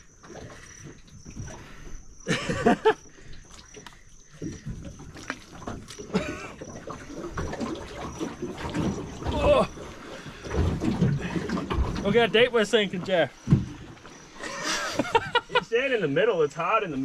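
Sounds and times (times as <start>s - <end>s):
mud squelching: 0.0s - 17.0s
water sloshing: 0.0s - 17.0s.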